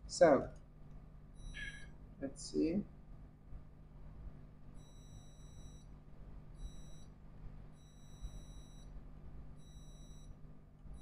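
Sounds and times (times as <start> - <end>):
short high-pitched beeps: 1.4 - 1.9.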